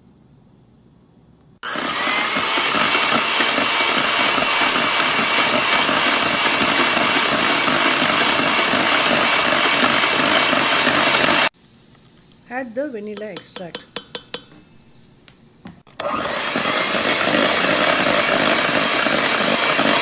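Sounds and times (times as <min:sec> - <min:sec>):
electric hand mixer whirring: 0:01.6 - 0:11.5, 0:15.9 - 0:20.0.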